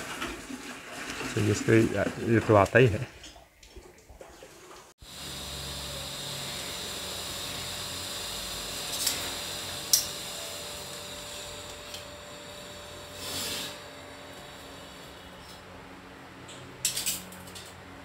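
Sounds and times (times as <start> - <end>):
metal scrape: 13.2 - 13.9.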